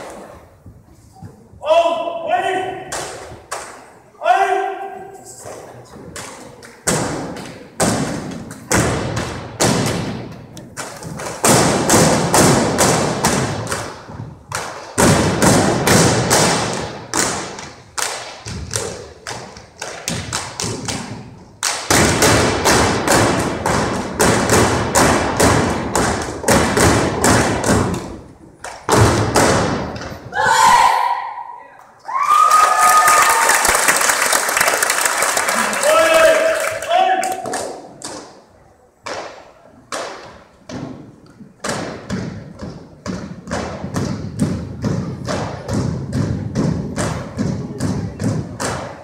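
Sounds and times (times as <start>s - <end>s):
drill team stomping and striking: 6.8s - 30.4s.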